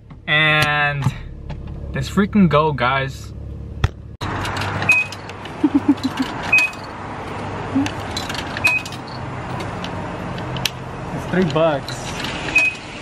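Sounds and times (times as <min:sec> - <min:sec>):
coin slot and button clicks: 0:04.4 - 0:05.4, 0:06.0 - 0:06.9, 0:07.8 - 0:09.2.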